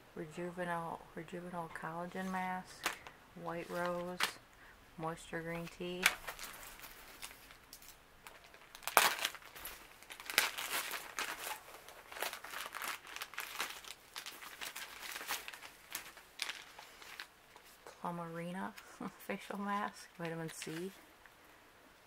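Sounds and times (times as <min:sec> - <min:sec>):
plastic bag crinkling: 0:05.6 - 0:17.9, 0:19.0 - 0:21.0.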